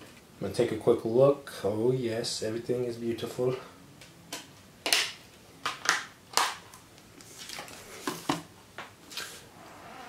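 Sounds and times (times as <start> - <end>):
paper rustling: 7.2 - 8.3.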